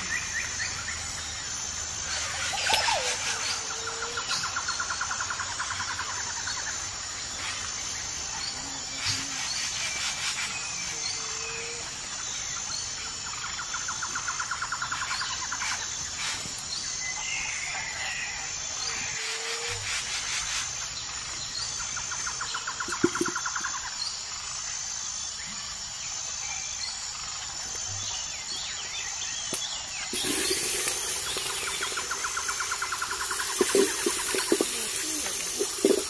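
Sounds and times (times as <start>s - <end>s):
insect drone: 0.0s - 36.0s
birds calling: 28.1s - 36.0s.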